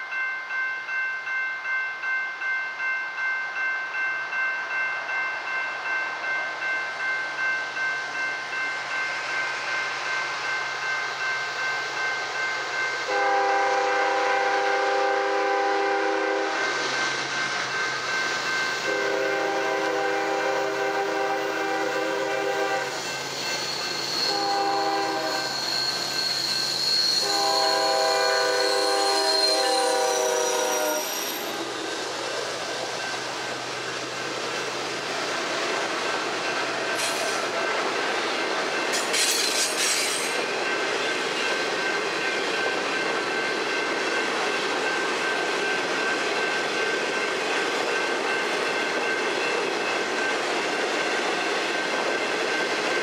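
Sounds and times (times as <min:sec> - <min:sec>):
diesel locomotive engine rumble: 0:12.6 - 0:53.0
train horn: 0:13.1 - 0:16.7, 0:18.8 - 0:23.0, 0:24.2 - 0:25.7, 0:27.1 - 0:31.9
thin high squeal: 0:22.9 - 0:32.3.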